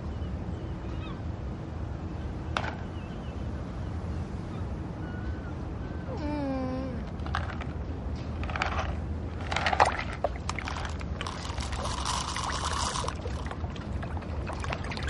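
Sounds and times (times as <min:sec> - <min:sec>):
low waterside rumble: 0:03.0 - 0:15.0
contents pouring into water: 0:09.5 - 0:15.0.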